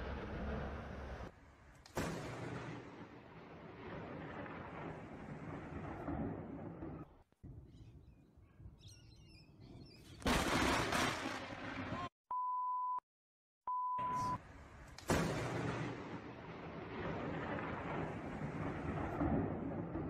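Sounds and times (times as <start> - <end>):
loud thunder crash: 15.1 - 20.0.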